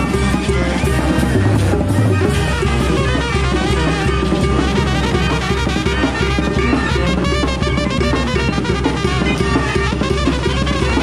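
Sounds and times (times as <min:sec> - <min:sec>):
brass band playing: 0:00.0 - 0:11.0
busy drum kit: 0:00.0 - 0:11.0
conga drum: 0:00.0 - 0:11.0
trombones: 0:00.0 - 0:11.0
trumpets: 0:00.0 - 0:11.0.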